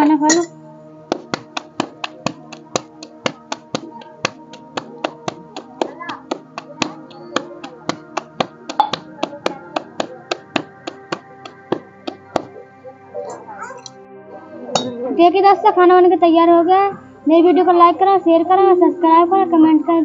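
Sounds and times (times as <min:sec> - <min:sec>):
background music with sustained tones: 0:00.0 - 0:20.0
dough slapped between palms: 0:01.1 - 0:12.6.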